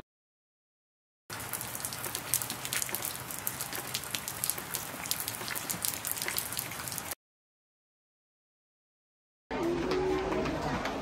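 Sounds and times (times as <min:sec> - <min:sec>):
rain hiss: 0:01.3 - 0:07.2
raindrop taps: 0:01.3 - 0:07.2.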